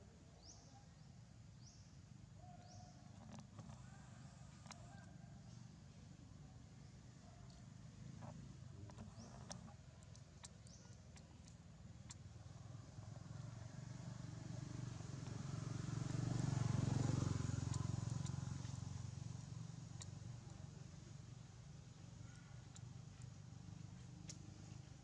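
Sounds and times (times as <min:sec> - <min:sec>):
faint clicks: 0:02.6 - 0:05.1, 0:08.2 - 0:12.2, 0:22.2 - 0:23.4, 0:24.0 - 0:24.8
vehicle engine passing by: 0:12.8 - 0:21.4.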